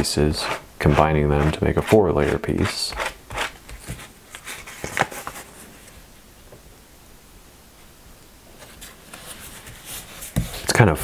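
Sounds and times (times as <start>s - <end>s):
paper rustling: 2.2s - 5.9s.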